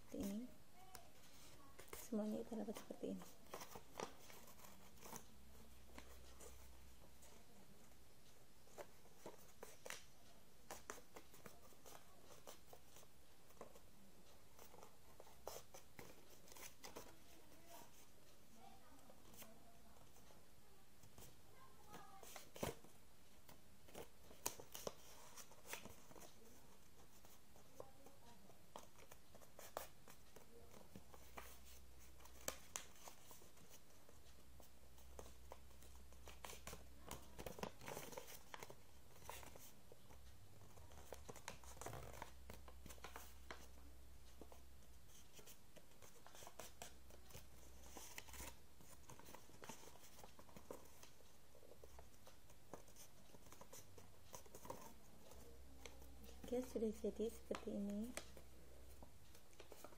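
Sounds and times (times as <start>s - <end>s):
paper crinkling while folded: 1.0s - 20.4s, 21.0s - 59.9s.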